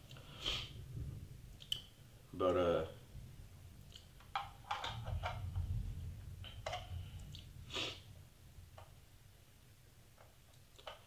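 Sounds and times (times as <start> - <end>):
metal tin clicking and scraping: 4.2 - 5.5.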